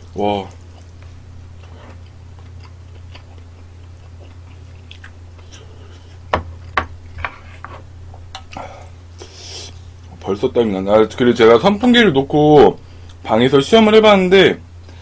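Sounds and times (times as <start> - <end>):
low hum: 0.0 - 13.6
quiet chewing: 0.4 - 7.3.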